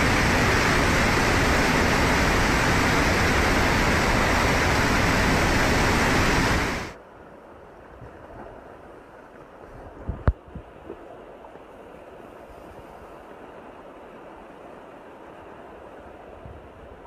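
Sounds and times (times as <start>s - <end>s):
floodwater rushing: 0.0s - 7.0s
quiet water flow: 0.0s - 17.0s.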